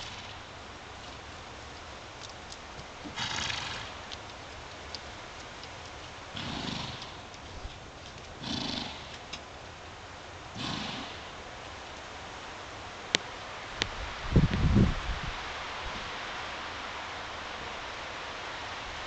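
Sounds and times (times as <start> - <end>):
horses snorting: 0.0 - 0.5, 2.7 - 9.4, 10.5 - 11.4
steady background hiss: 0.0 - 19.0.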